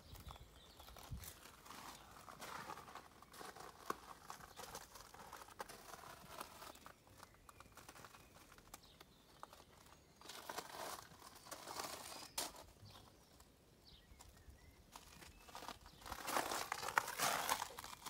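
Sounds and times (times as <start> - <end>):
footsteps crunching: 0.0 - 13.4, 14.1 - 18.0.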